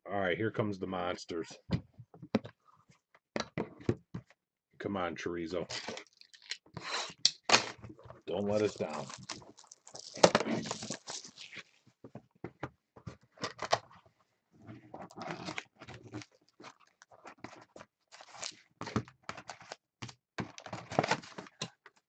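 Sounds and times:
foil pack rustling and crinkling: 8.4s - 11.8s
cardboard box tearing: 8.5s - 11.5s.

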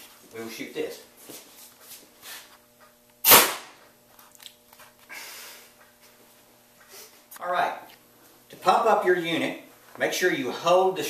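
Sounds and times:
air cannon loud pop: 3.2s - 3.8s.

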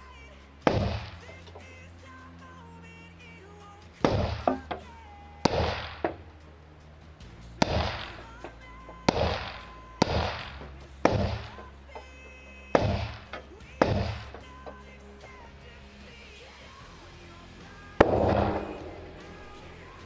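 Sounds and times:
suppressed rifle shots: 5.5s - 6.2s, 18.0s - 19.6s.

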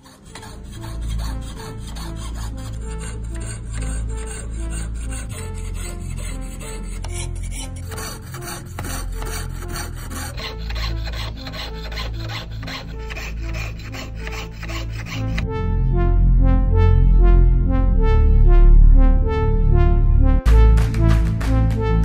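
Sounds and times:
saw cutting thin metal: 0.0s - 15.4s
background music: 0.0s - 22.0s.

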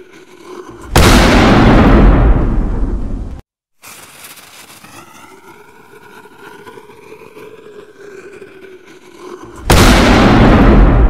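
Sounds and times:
loud rumbling boom: 1.0s - 3.4s, 9.7s - 11.0s.

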